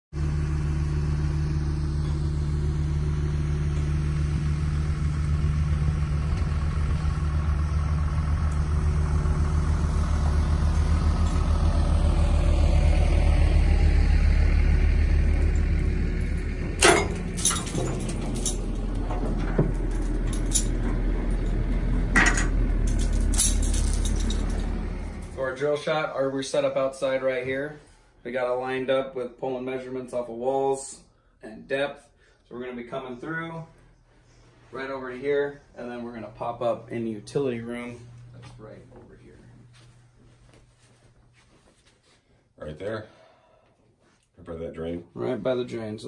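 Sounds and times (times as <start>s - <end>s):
engine running: 0.1s - 26.8s, 33.8s - 41.3s.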